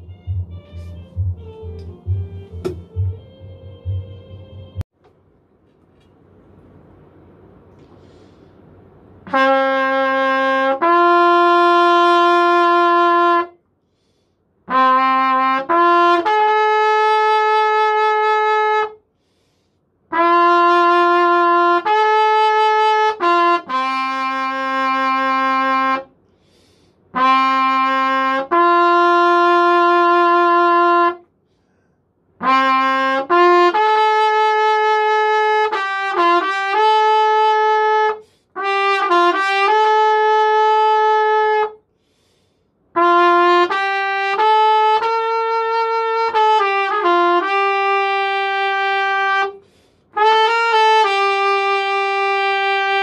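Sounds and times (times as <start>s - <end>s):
trumpet playing long notes: 9.2s - 13.6s, 14.7s - 19.0s, 20.1s - 26.1s, 27.1s - 31.2s, 32.4s - 41.8s, 42.9s - 53.0s.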